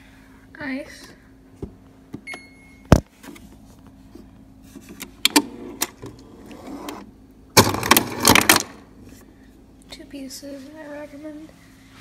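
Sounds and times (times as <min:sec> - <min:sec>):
ice dispenser motor running: 0:05.2 - 0:08.9.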